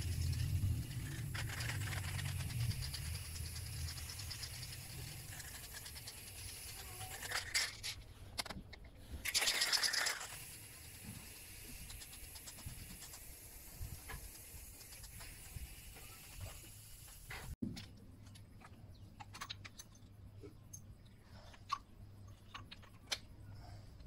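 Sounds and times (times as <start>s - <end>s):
spray paint can hissing: 0.0s - 8.0s, 9.2s - 17.6s.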